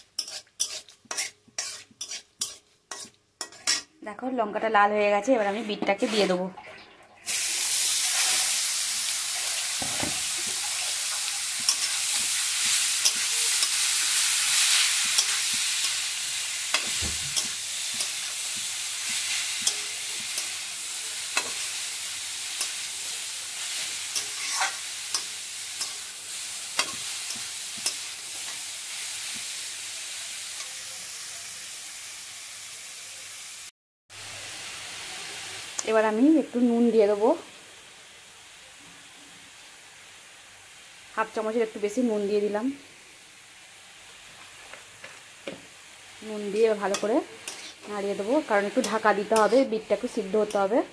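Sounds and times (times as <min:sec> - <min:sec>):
spatula scraping a pan: 0:00.0 - 0:03.9, 0:05.4 - 0:06.4, 0:11.5 - 0:21.8, 0:23.7 - 0:26.1, 0:46.9 - 0:47.9, 0:48.6 - 0:49.7
beetroot sizzling in hot oil: 0:00.0 - 0:06.4, 0:07.2 - 0:50.9.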